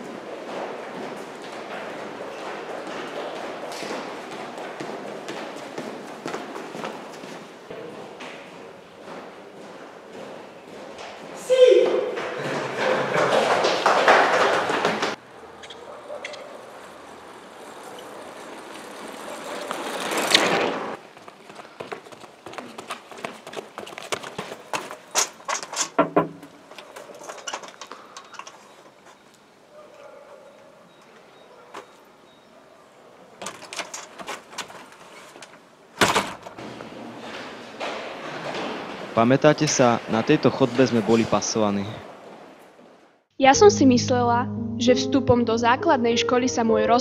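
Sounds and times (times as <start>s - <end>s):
light footsteps: 0.0s - 15.2s
bicycle tyres on concrete: 0.0s - 43.3s
door clicks and rattles: 25.2s - 28.6s, 33.4s - 36.6s
loud door thump: 36.0s - 36.8s.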